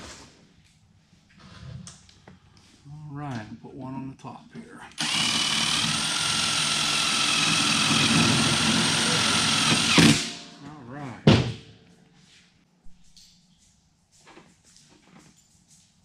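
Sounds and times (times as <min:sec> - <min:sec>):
cordless drill driving screw into metal: 0:05.0 - 0:10.5.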